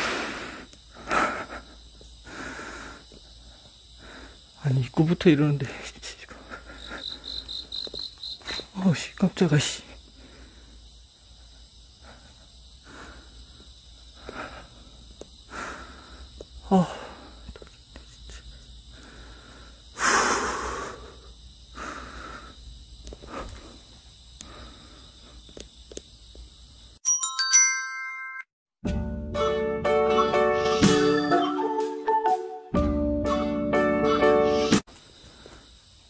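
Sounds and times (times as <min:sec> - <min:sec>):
loud breathy rush of noise: 0:00.0 - 0:04.6, 0:10.1 - 0:17.4, 0:18.4 - 0:25.4
crickets chirping: 0:00.0 - 0:27.0, 0:33.4 - 0:36.0
glockenspiel-like chime notes: 0:27.0 - 0:28.5, 0:30.9 - 0:32.7.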